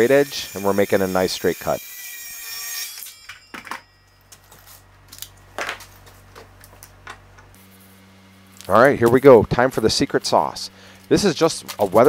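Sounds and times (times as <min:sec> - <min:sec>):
tools set down on workbench: 0:03.3 - 0:04.7.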